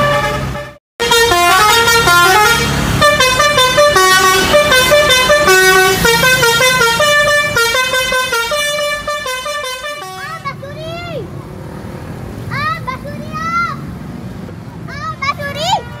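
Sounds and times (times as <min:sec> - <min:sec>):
musical bus horn tune: 0:00.0 - 0:10.4.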